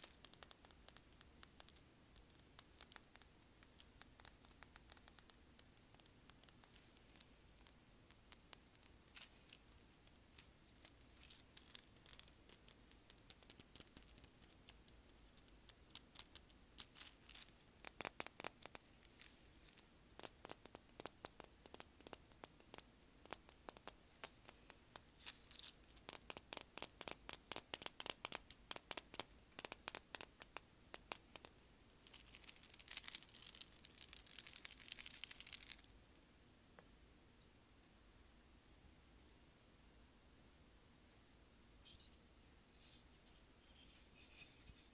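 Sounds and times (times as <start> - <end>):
fingernails tapping on seashells: 20.2 - 31.5.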